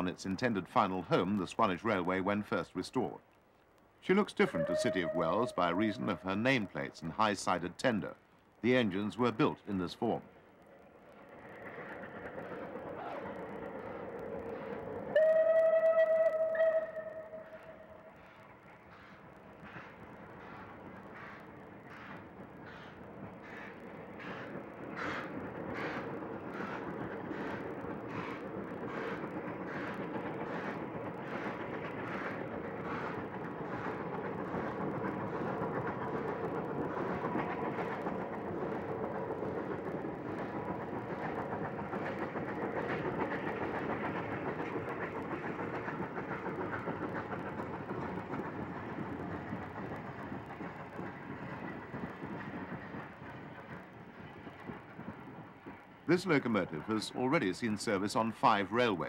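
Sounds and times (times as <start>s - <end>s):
train wheels on rail: 0.0s - 59.0s
steam locomotive exhaust beats: 11.7s - 58.4s.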